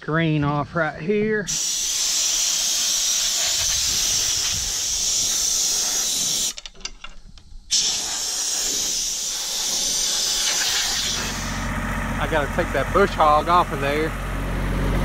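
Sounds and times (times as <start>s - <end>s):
compressed air hissing: 1.5s - 11.7s.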